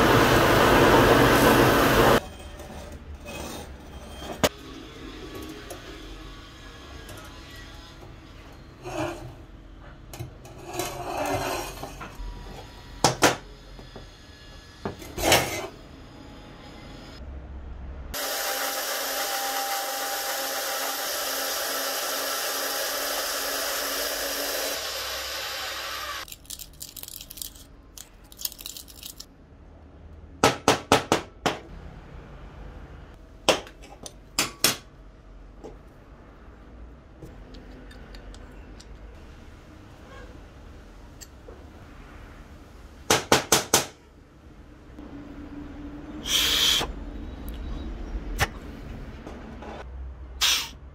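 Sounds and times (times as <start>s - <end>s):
band saw cutting steel pipe: 18.2s - 26.2s.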